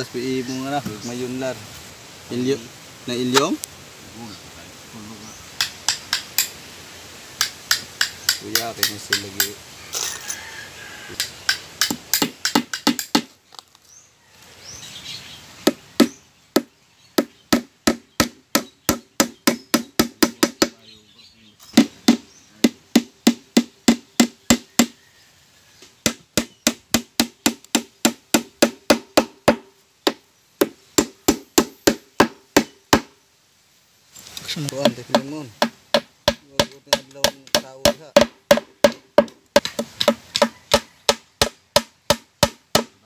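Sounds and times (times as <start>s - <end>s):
hammer driving nails into wood: 11.2s - 13.3s.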